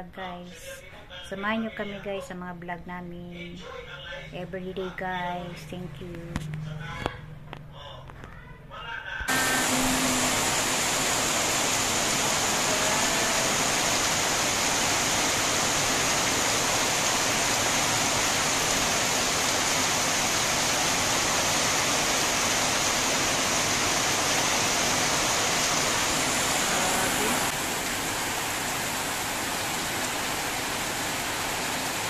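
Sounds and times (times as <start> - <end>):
heavy rain pouring: 9.3 - 32.0.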